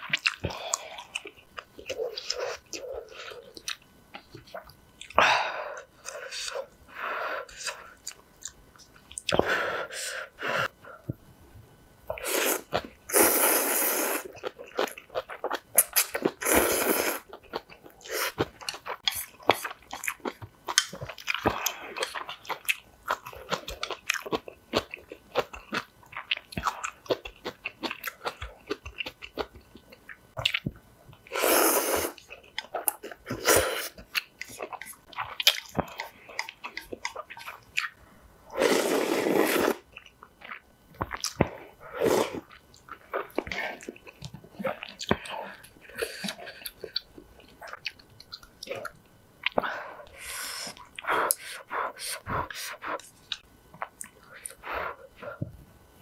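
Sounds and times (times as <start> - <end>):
noodle slurping: 38.5 - 39.8.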